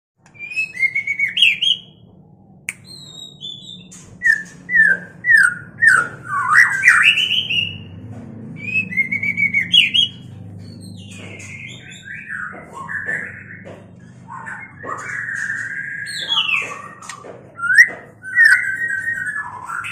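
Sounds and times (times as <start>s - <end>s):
birds whistling calls: 0.3s - 7.9s, 8.6s - 19.9s.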